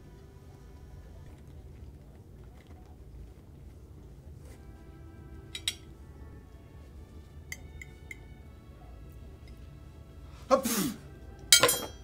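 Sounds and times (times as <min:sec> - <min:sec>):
soft background music: 0:00.0 - 0:12.0
cutlery clinking on plate: 0:11.5 - 0:12.0.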